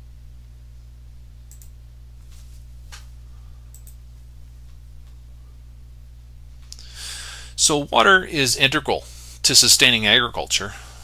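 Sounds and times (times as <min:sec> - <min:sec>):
steady low hum: 0:00.0 - 0:11.0
computer mouse clicks: 0:01.5 - 0:01.7, 0:03.7 - 0:04.0.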